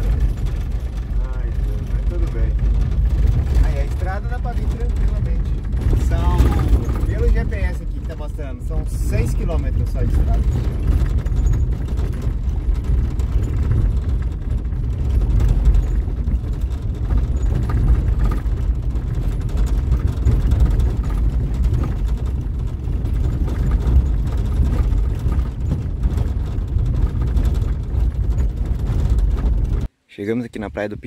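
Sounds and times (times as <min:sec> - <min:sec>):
rattles and knocks: 0:00.0 - 0:29.9
van road and engine rumble: 0:00.0 - 0:30.1.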